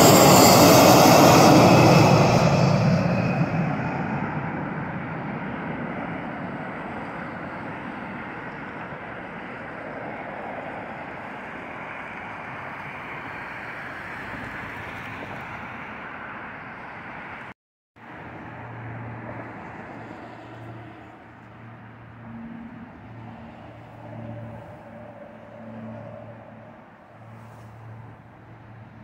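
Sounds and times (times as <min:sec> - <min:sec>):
jet engine roar: 0:00.0 - 0:17.4.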